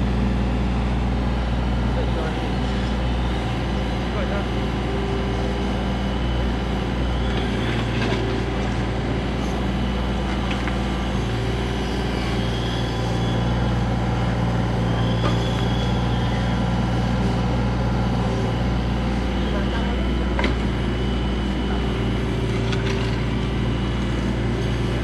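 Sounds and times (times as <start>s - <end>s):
mini excavator running: 0.0s - 25.0s.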